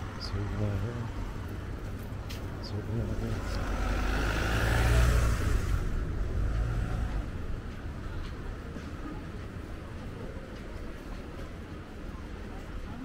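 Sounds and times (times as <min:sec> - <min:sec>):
vehicle passing: 0:02.6 - 0:08.2.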